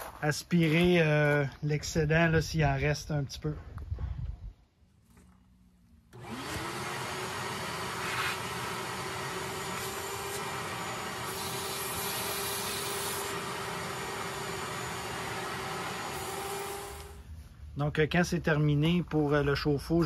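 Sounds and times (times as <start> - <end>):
wet dry vacuum running: 6.1 - 17.2.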